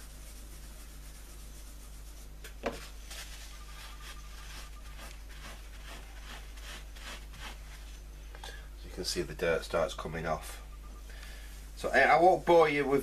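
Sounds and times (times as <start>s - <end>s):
kitchen paper scuffing cloth: 0.0s - 8.0s
low steady hum: 0.0s - 13.0s.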